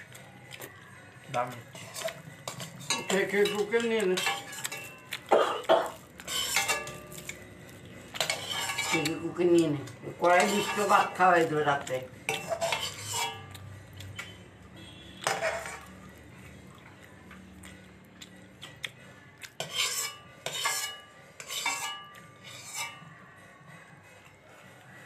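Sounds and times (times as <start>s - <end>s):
person chewing food: 0.0s - 3.4s, 4.1s - 8.6s, 12.8s - 14.4s, 15.8s - 20.6s
plate clinks and scrapes: 1.7s - 7.4s, 8.2s - 9.2s, 12.3s - 13.4s, 15.2s - 15.9s, 19.6s - 23.0s.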